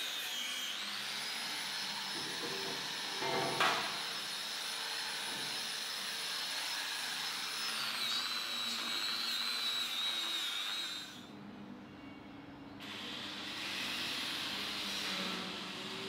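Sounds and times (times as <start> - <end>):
angle grinder whining and grinding: 0.0 - 11.3.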